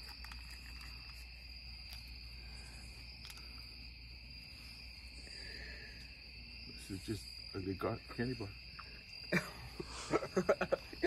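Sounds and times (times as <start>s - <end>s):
insects trilling: 0.0s - 11.0s.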